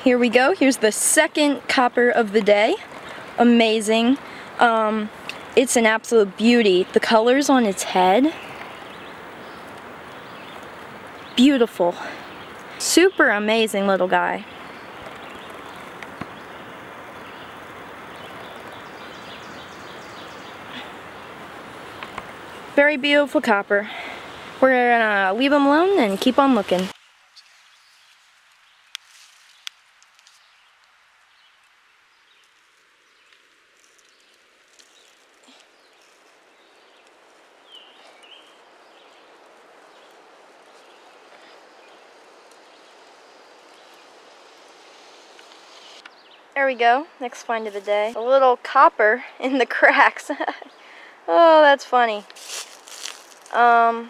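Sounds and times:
outdoor background rush: 0.0s - 54.0s
small ticks: 14.7s - 16.5s, 28.4s - 31.0s, 45.3s - 46.2s.

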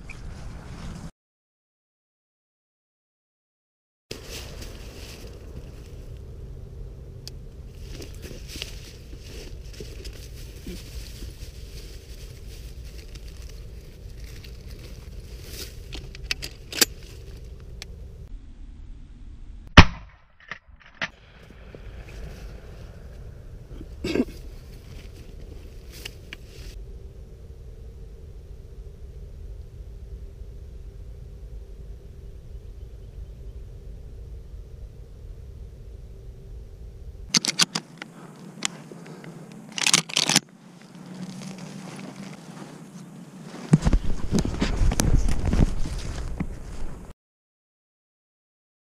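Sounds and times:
wind rumble on microphone: 0.0s - 1.1s, 21.2s - 37.3s, 43.4s - 47.1s
handling clicks and rustles in grass: 4.1s - 6.3s, 7.1s - 18.0s, 20.5s - 26.8s, 37.3s - 47.1s
loud shotgun shot: 19.8s - 20.2s.

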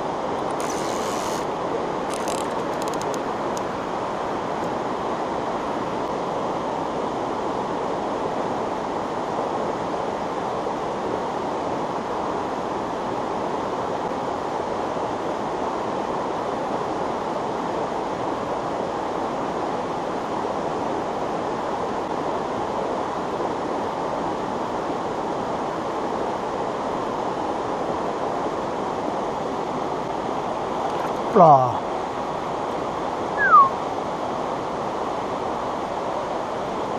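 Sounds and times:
mountain stream rushing: 0.0s - 36.9s.

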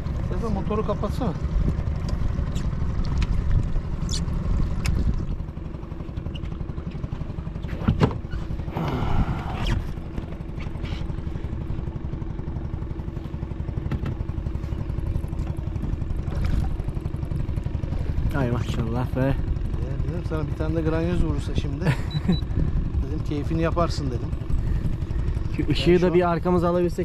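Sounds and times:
boat engine idling: 0.0s - 27.0s.

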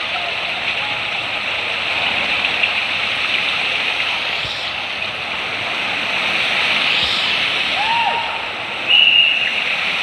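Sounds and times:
steady rushing water: 0.0s - 10.0s.

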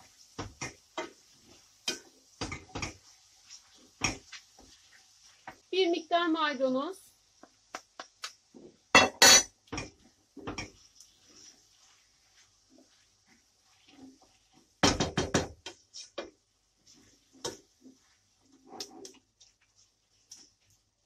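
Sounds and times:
wooden spoon scraping metal pan: 10.4s - 14.7s.

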